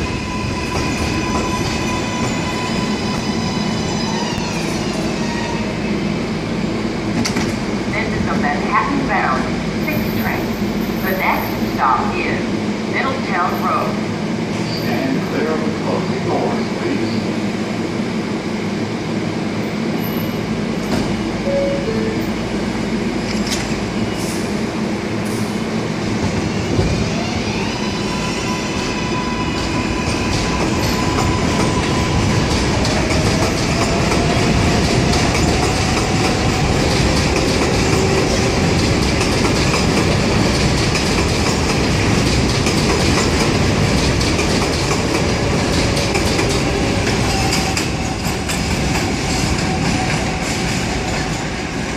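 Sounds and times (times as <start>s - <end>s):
subway train doors closing: 0.0s - 51.9s.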